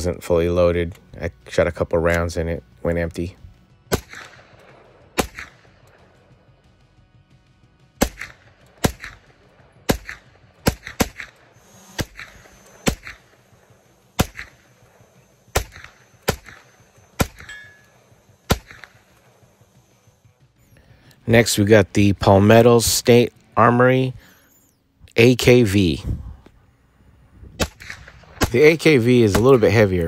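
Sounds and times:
carbine gunshots with echo: 3.8 - 6.6, 7.9 - 20.8, 27.5 - 30.0.

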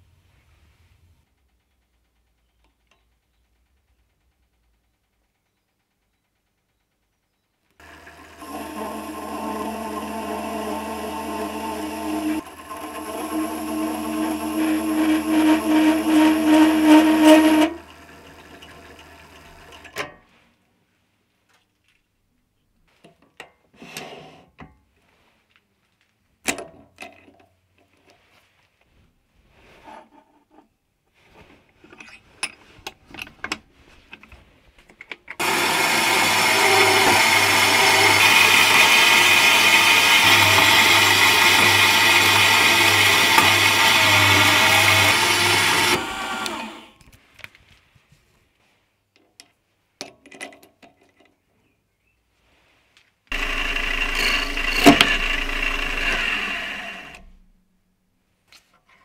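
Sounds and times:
bandsaw cutting metal: 7.8 - 19.9, 35.4 - 46.9, 53.3 - 57.4
lathe spindle running: 7.8 - 19.9, 35.4 - 46.9, 53.3 - 57.3.

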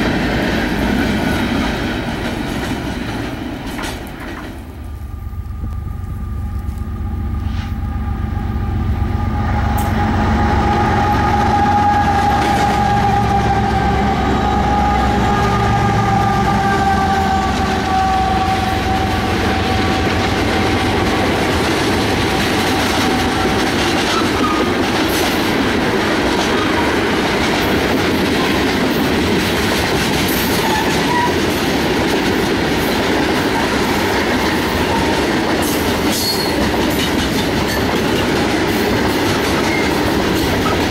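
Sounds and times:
freight cars clattering on rails: 0.0 - 4.8, 20.2 - 40.9
locomotive engine rumble: 0.0 - 40.9
whine falling in pitch: 5.0 - 11.8.

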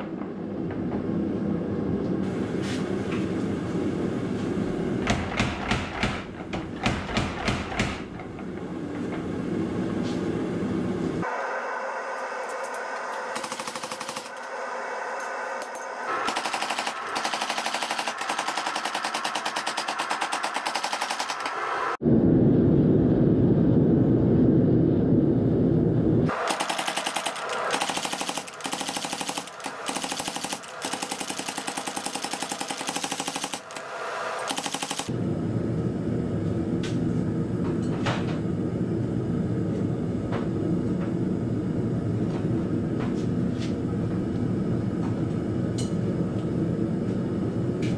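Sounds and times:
loud low rush: 22.0 - 26.3.

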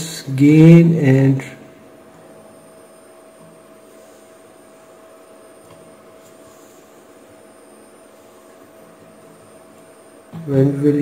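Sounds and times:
faint constant whine: 0.0 - 11.0.

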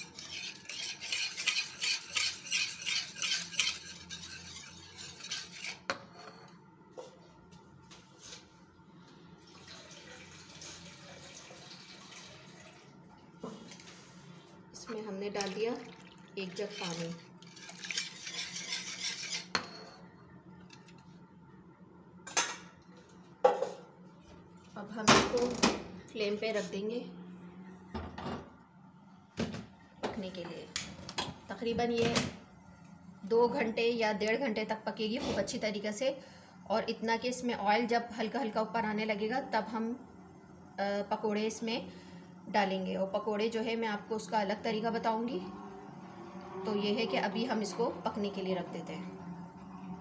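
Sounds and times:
whisk beating batter in pan: 0.0 - 5.9, 16.6 - 19.5.

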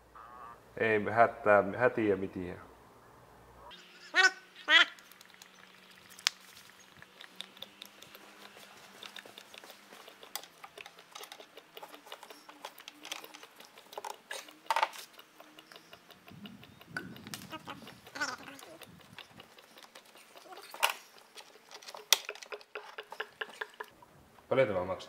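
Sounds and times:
hands clicking on engine parts: 7.0 - 24.0.

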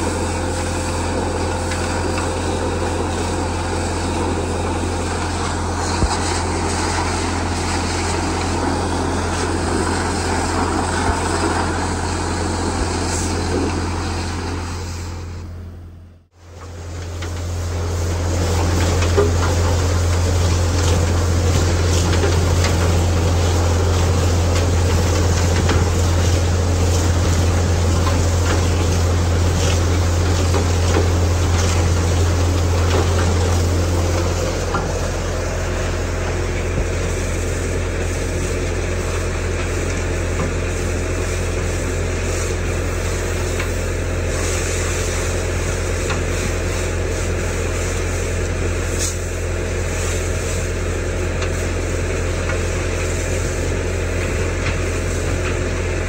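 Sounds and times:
low machine drone: 0.0 - 56.0
high-pressure water jet hissing: 17.0 - 56.0.

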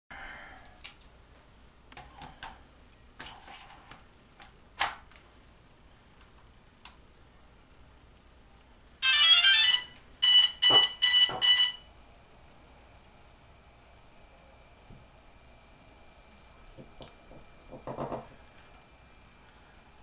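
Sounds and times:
drone power-on beeps: 9.0 - 11.9.

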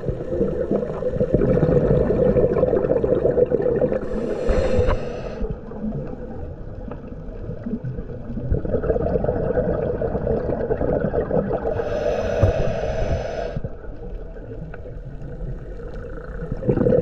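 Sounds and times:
exhaled bubbles gurgling underwater: 0.0 - 17.0
regulator inhale hiss: 4.0 - 5.7, 11.7 - 14.0.

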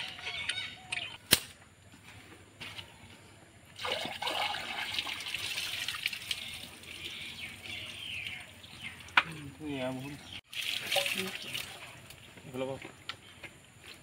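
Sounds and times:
water trickling and splashing: 3.8 - 12.8.

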